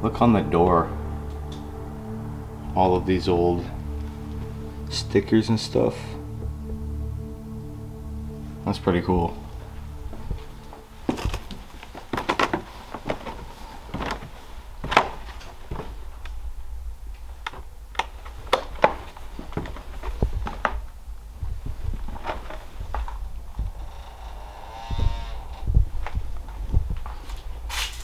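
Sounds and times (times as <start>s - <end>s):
low rumble: 0.0s - 12.2s, 19.1s - 27.8s
footsteps on wooden stairs: 10.1s - 16.1s, 18.5s - 23.8s.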